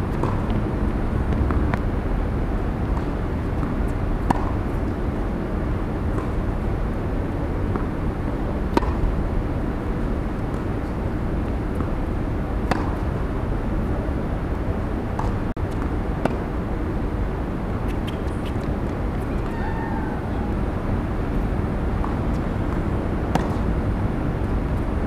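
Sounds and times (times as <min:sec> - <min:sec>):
low outdoor rumble: 0:00.0 - 0:25.0
tennis ball struck by rackets: 0:00.1 - 0:00.6, 0:02.8 - 0:04.8, 0:06.1 - 0:06.4, 0:08.7 - 0:09.1, 0:12.6 - 0:13.2, 0:15.2 - 0:16.5, 0:21.9 - 0:23.8.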